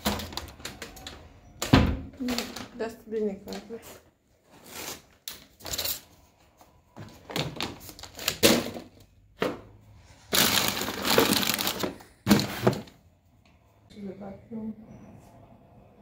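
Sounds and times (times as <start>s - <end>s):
paper crumpling and rustling: 10.3s - 12.6s.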